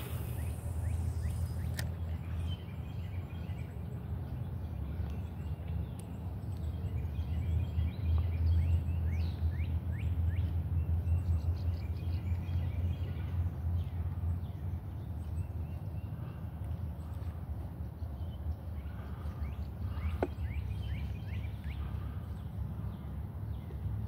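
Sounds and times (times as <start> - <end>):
steady low rumble: 0.0 - 3.3
birds chirping: 0.0 - 24.0.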